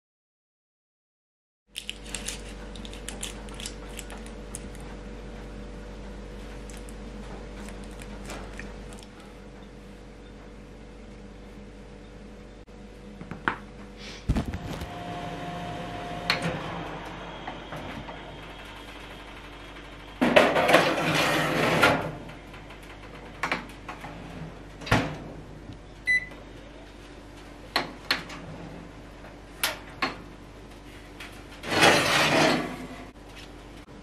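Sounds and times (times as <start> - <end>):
metal tray scraping on oven rails: 20.3 - 22.2, 31.6 - 33.2.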